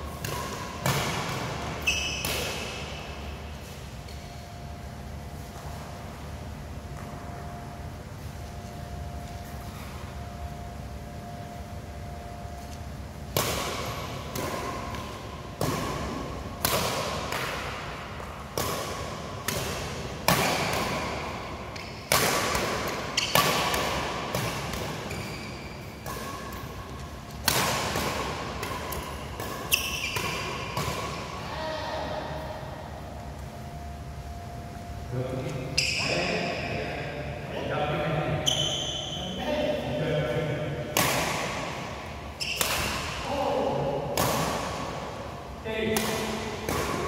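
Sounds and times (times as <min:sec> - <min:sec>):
rackets hitting shuttlecock: 0:00.1 - 0:04.3, 0:12.6 - 0:31.4, 0:40.9 - 0:43.2, 0:44.0 - 0:45.1, 0:45.8 - 0:47.0.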